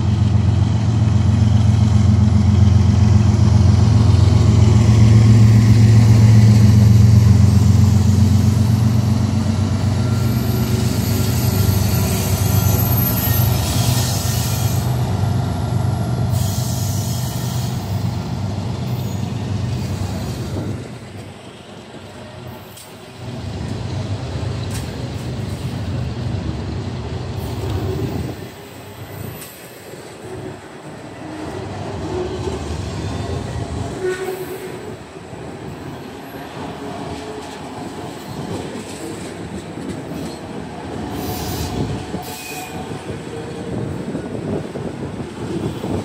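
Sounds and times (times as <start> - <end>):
train wheels rumbling on rails: 0.0 - 46.0
high wheel squeals: 9.9 - 15.0.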